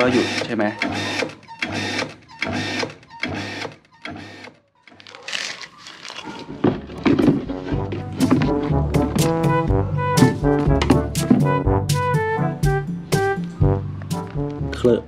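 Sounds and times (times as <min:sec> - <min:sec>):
water pump motor starting and stopping: 0:00.0 - 0:04.5.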